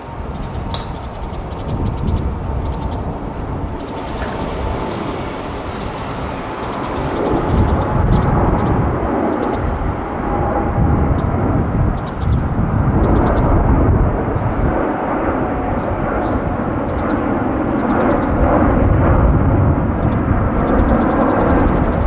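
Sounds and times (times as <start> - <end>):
jet engine rumble with whine: 0.0 - 22.0.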